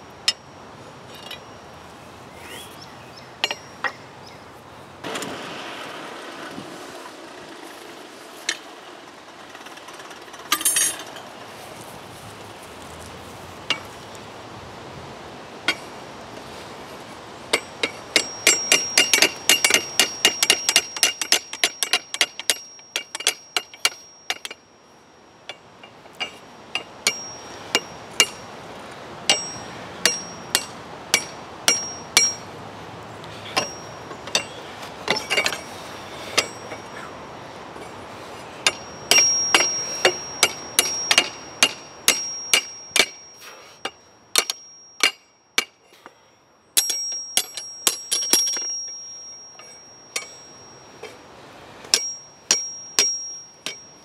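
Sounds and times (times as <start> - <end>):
hammer ringing on anvil: 3.4 - 4.0, 17.5 - 24.6, 26.2 - 28.4, 29.3 - 32.4, 33.6 - 35.7, 36.4 - 37.0, 38.6 - 45.8, 46.8 - 51.2, 51.9 - 54.0.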